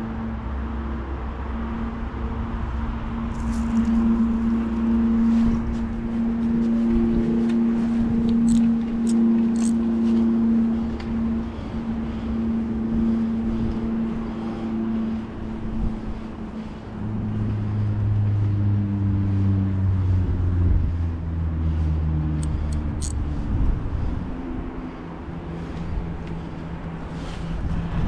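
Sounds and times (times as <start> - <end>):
fishing reel gears humming: 7.8 - 15.4, 21.7 - 23.5
sharp reel clicks: 8.4 - 9.8, 22.4 - 23.2.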